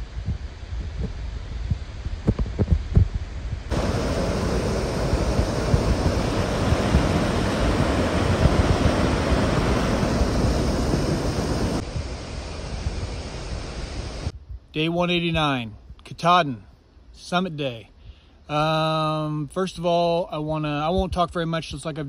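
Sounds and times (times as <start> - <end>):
wind buffeting microphone: 0.0 - 16.0
water rushing over boulders: 3.7 - 14.3.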